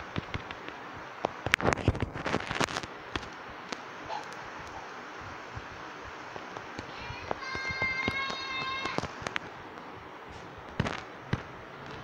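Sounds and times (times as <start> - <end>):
sharp cracks and pops: 0.0 - 4.8, 6.5 - 9.9, 10.6 - 12.0
steady hiss: 0.0 - 12.0.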